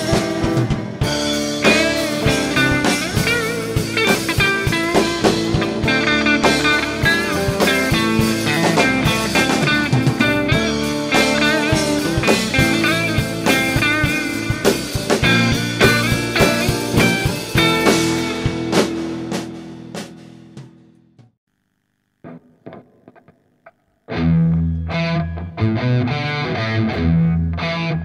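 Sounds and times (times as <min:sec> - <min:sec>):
electric guitar playing bluesy rock: 0:00.0 - 0:20.6, 0:24.1 - 0:28.0
drums: 0:00.0 - 0:21.4.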